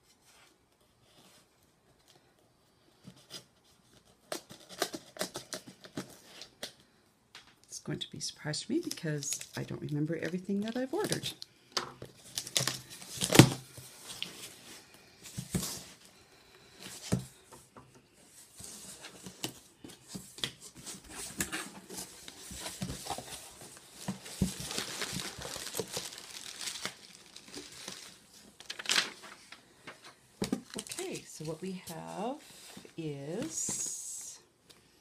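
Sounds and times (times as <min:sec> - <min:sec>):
paper rustling and crinkling: 0:12.0 - 0:16.0, 0:18.3 - 0:33.9
packing tape ripping: 0:12.3 - 0:13.6.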